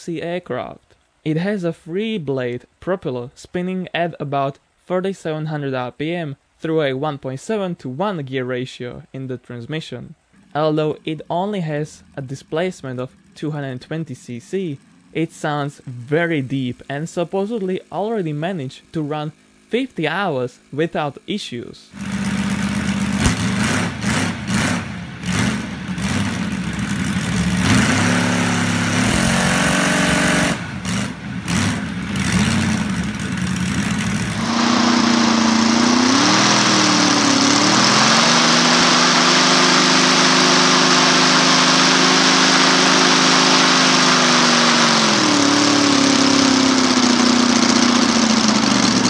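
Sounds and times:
model aircraft engine running: 0:10.4 - 0:21.4, 0:22.0 - 0:49.0.

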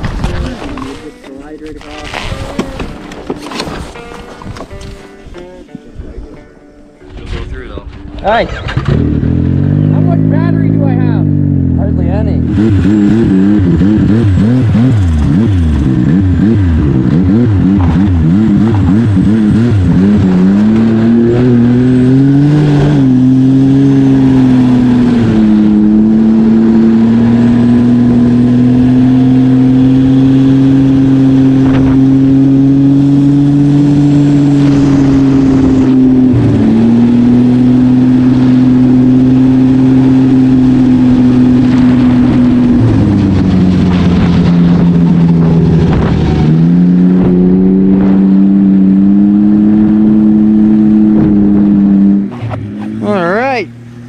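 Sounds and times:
snowmobile engine revving: 0:08.2 - 0:54.0.

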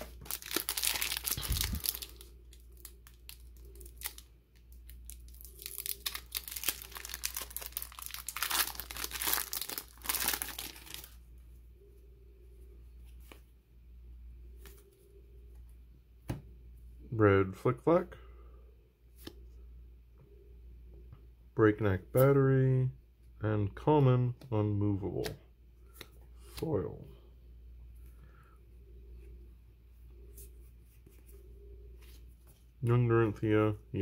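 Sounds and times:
foil wrapper crinkling and tearing: 0:00.0 - 0:11.2.

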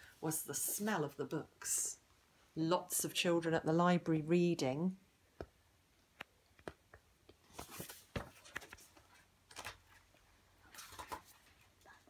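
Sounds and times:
paper pages rustling: 0:07.4 - 0:12.0.

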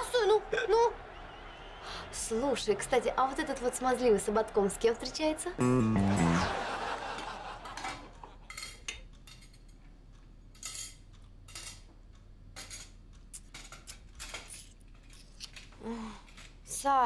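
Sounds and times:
cutlery and dishes clinking: 0:07.8 - 0:09.9, 0:10.5 - 0:11.9, 0:12.5 - 0:15.2.

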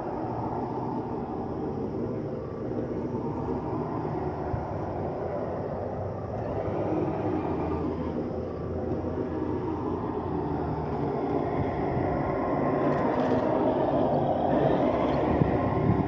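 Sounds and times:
toy car motor running: 0:06.3 - 0:16.0.

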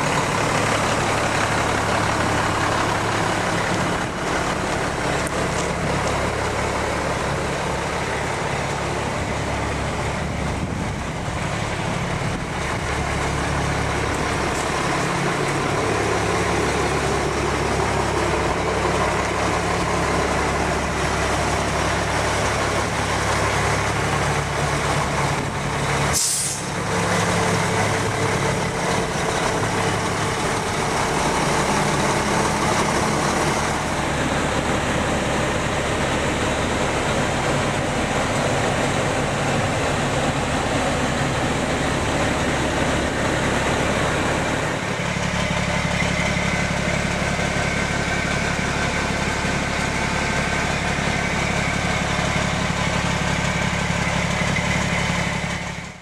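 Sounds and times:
diesel truck engine idling: 0:00.0 - 0:56.0
short sharp hiss: 0:26.1 - 0:26.7.

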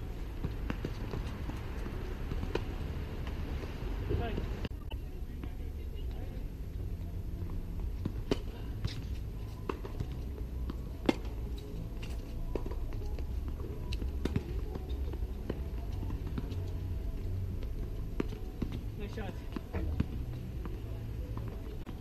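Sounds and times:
tennis ball bounces: 0:08.0 - 0:16.7.

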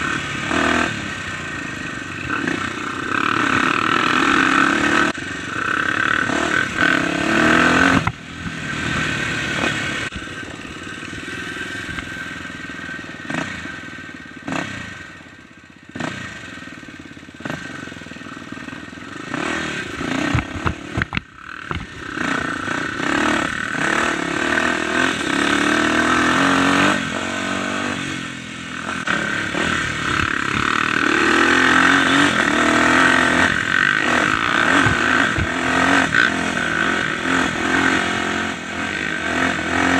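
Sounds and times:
dirt bike engine: 0:00.0 - 0:39.9
knocks and rattles over log: 0:20.2 - 0:22.0, 0:34.4 - 0:35.6.

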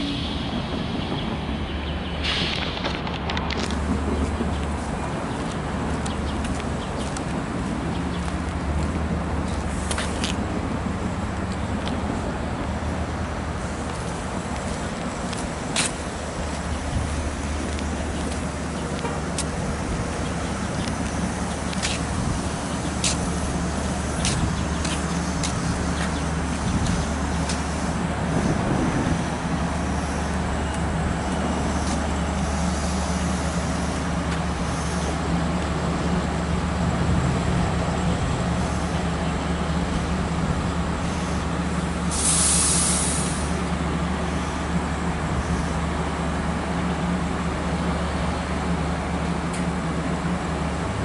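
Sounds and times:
diesel train idling hum: 0:00.0 - 0:51.0
air brake hiss: 0:42.0 - 0:43.6.

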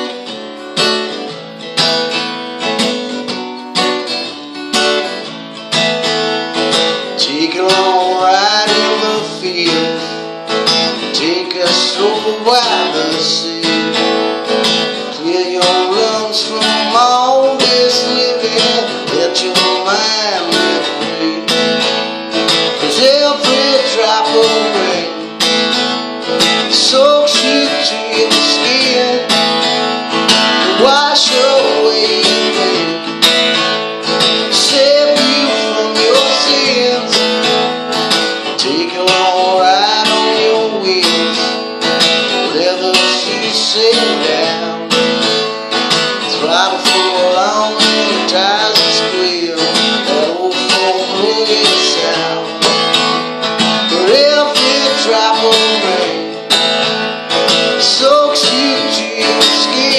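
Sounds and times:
acoustic guitar strumming: 0:00.0 - 0:59.9
man singing: 0:07.0 - 0:33.6, 0:34.2 - 0:45.5, 0:46.2 - 0:56.8, 0:57.4 - 0:59.9.

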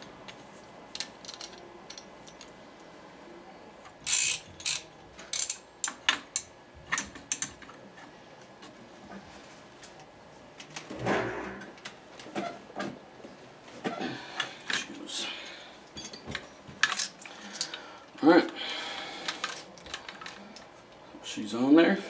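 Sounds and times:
torque wrench clicking: 0:04.0 - 0:06.5.

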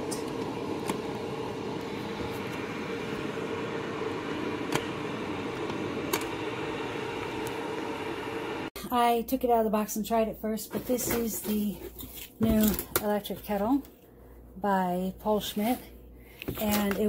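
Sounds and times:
whooshing hum: 0:00.0 - 0:08.8.

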